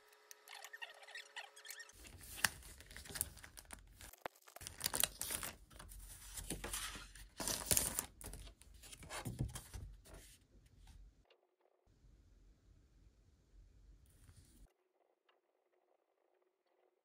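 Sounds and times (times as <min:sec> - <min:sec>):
plastic wrapper crinkling: 0:02.0 - 0:08.5
paper cards rustling: 0:02.0 - 0:10.3.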